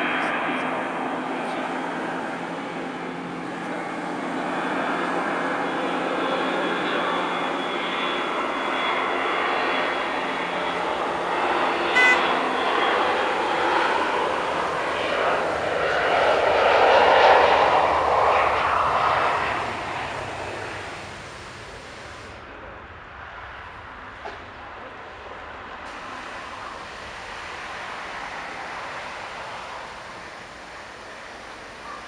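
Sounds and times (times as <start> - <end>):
jet engines whining: 0.0 - 32.0.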